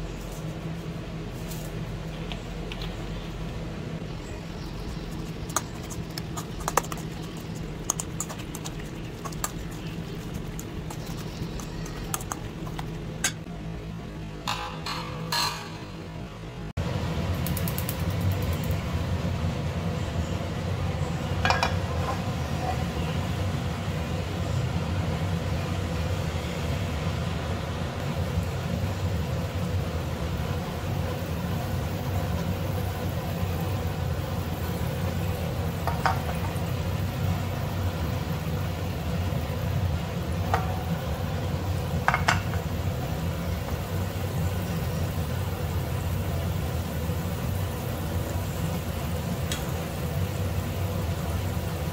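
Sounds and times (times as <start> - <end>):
low rumble of gas burner: 0.0 - 51.9
butter sizzling in a frying pan: 28.0 - 51.9.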